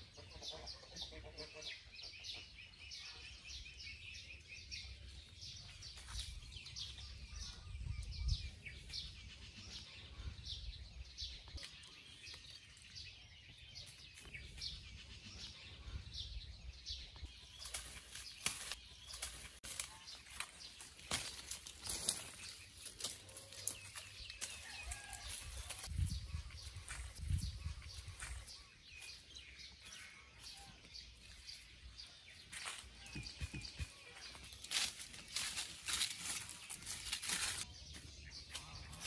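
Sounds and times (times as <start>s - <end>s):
small birds chirping: 0.0s - 39.0s
sharp rustling: 34.6s - 37.7s.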